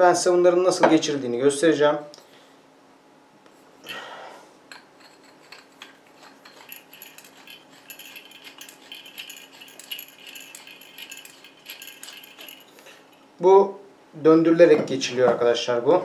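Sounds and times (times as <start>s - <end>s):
metal parts clicking and rattling: 4.7s - 13.3s
metallic scraping: 4.9s - 13.3s.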